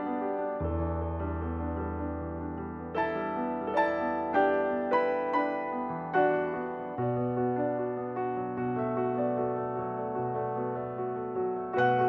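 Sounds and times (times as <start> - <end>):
slow gentle piano melody: 0.0 - 12.0.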